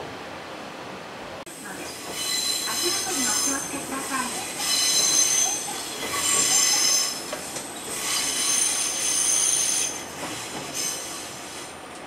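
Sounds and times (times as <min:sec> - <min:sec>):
train rumbling: 0:00.0 - 0:12.0
train wheels squealing on track: 0:01.8 - 0:11.7.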